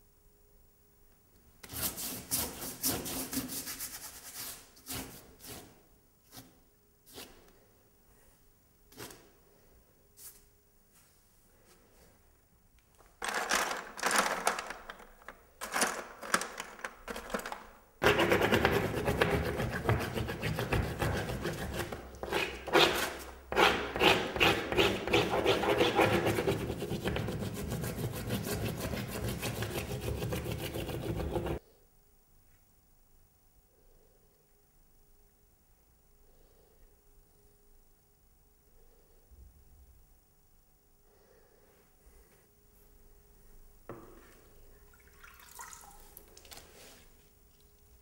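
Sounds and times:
hand scrubbing paint on canvas: 18.0s - 31.6s.

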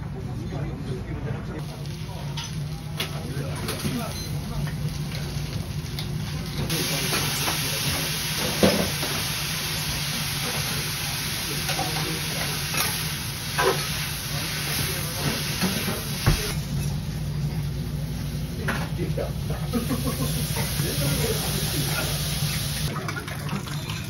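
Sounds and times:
food sizzling in pan: 4.3s - 18.6s, 19.3s - 22.9s.

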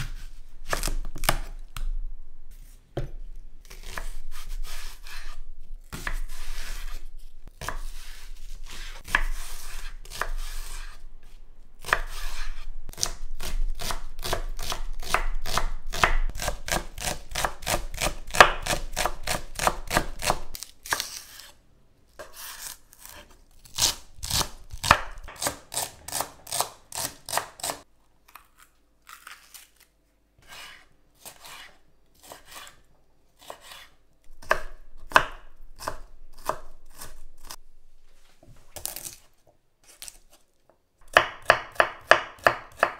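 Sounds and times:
knife chopping on wooden board: 3.0s - 7.0s, 7.6s - 10.9s, 11.8s - 21.0s, 23.1s - 27.8s, 33.4s - 37.1s, 41.1s - 42.9s.

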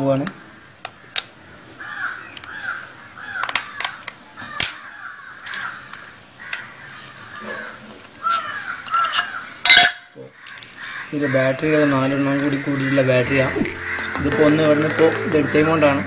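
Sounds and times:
crows cawing: 0.0s - 16.0s
plastic case clicking and snapping: 3.4s - 4.8s.

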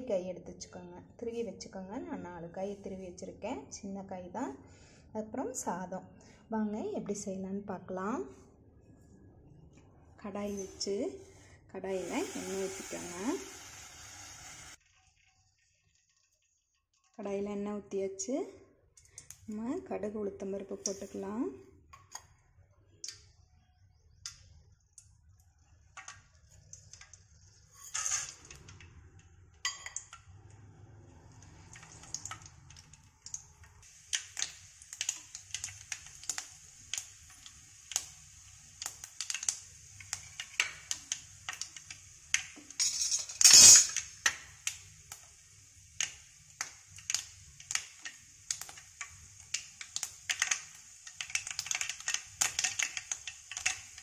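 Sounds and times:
seeds sizzling in hot oil: 10.3s - 16.7s, 24.3s - 28.9s, 29.6s - 54.0s
mustard seeds popping and crackling: 31.7s - 45.3s, 46.0s - 54.0s.

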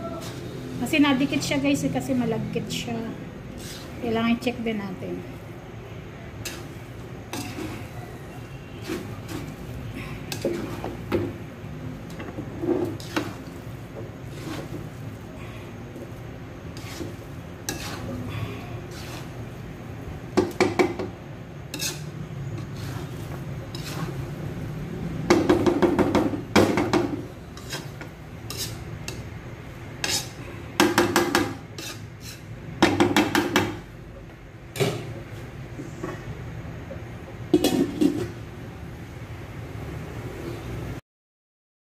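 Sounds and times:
spatula scraping a metal wok: 0.1s - 0.8s, 3.4s - 4.7s, 6.3s - 21.0s, 21.6s - 32.6s, 37.6s - 38.4s.

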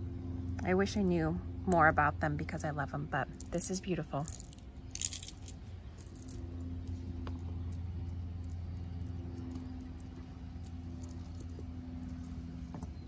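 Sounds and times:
low hum: 0.0s - 13.0s
metal jewelry clicking: 3.3s - 13.0s.

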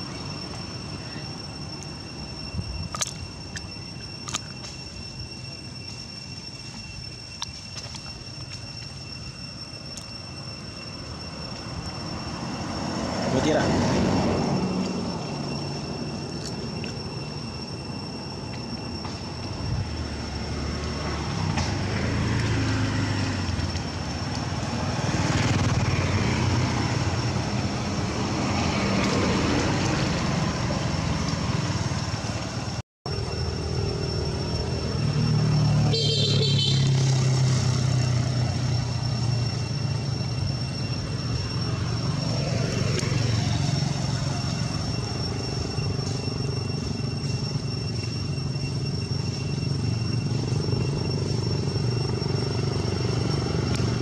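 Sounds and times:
steady high thin whine: 0.0s - 54.0s
motorbikes and cars passing: 11.0s - 17.9s, 19.0s - 54.0s.

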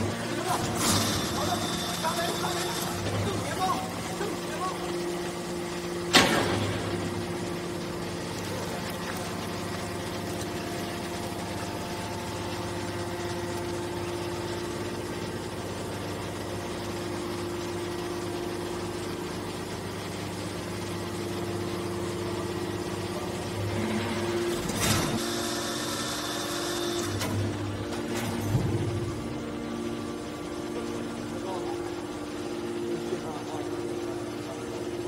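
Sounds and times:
hydraulic baler motor humming: 0.0s - 21.2s.

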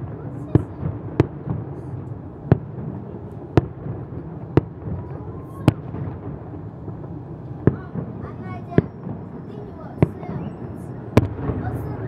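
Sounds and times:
fireworks bangs: 0.0s - 12.0s
low background noise: 0.0s - 12.0s.

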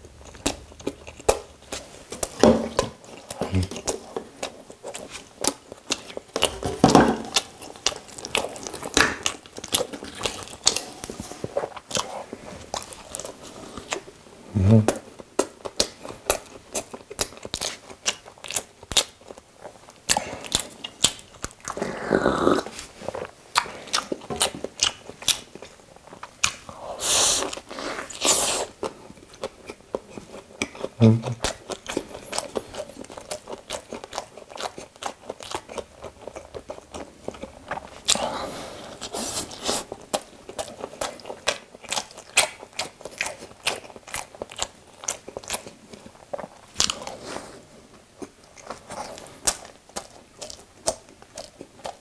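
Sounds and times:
close-up biting and chewing: 0.0s - 14.2s, 14.8s - 52.0s.

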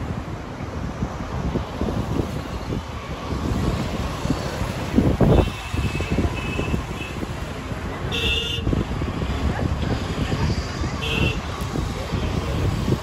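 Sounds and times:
street traffic: 0.0s - 13.0s
wind rumble on microphone: 0.0s - 13.0s
vehicle horns honking: 5.2s - 7.2s, 8.1s - 8.8s, 11.0s - 11.4s.

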